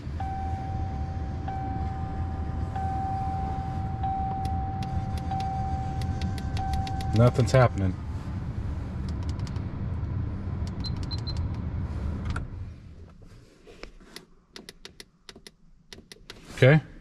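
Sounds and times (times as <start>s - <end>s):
low cab hum: 0.0s - 17.0s
clicks and taps of controls: 4.2s - 7.3s, 9.0s - 9.6s, 10.6s - 11.6s, 14.2s - 16.4s.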